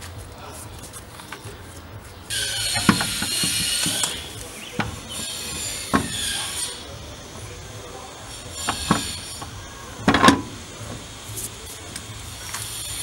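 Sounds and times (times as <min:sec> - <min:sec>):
sharp metallic knocks: 0:02.3 - 0:07.1, 0:08.2 - 0:11.1
metal ratcheting: 0:02.3 - 0:11.5.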